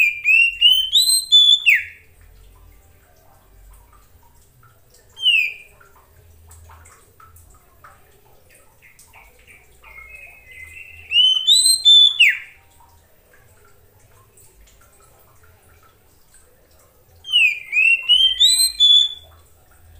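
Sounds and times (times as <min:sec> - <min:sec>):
bird singing whistles: 0:00.0 - 0:02.0, 0:05.2 - 0:05.7, 0:09.8 - 0:12.6, 0:17.2 - 0:19.3.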